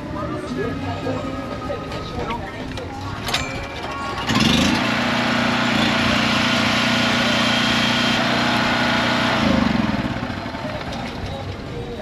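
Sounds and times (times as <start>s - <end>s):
small gasoline engine running: 4.2s - 11.5s.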